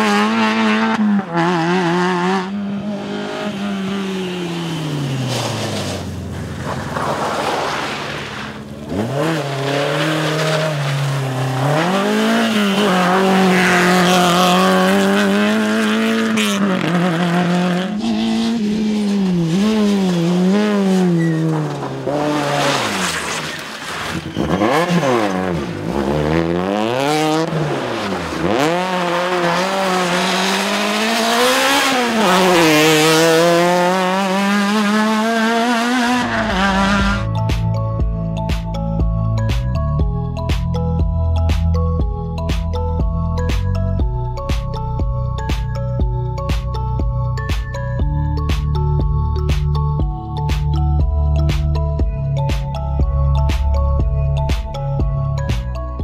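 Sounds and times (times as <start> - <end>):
rally cars revving past: 0.0 - 37.3.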